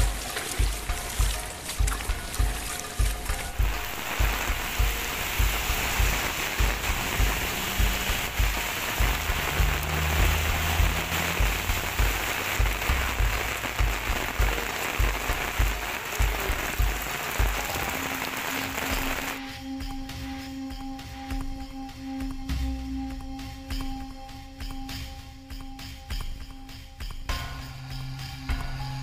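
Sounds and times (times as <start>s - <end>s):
heavy rain and rushing floodwater: 0.0s - 19.4s
background music with low beat: 0.0s - 29.0s.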